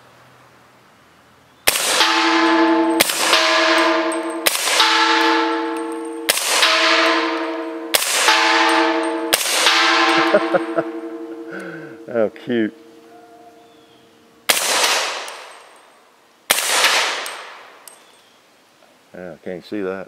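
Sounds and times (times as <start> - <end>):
suppressed gunshots: 1.7 - 2.2, 2.9 - 5.4, 6.3 - 8.6, 9.3 - 9.8, 14.5 - 15.5, 16.5 - 17.6
steel target clanging and ringing: 1.7 - 13.8, 14.5 - 18.0.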